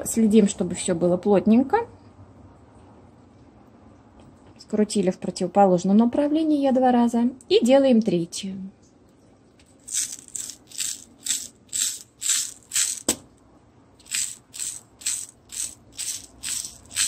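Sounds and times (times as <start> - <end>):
beads rattling in plastic box: 9.8 - 13.2, 14.0 - 17.0.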